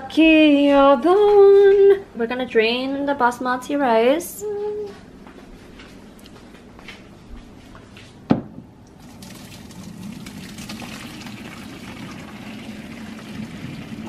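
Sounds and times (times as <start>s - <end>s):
water pouring into a sink: 9.0s - 14.0s.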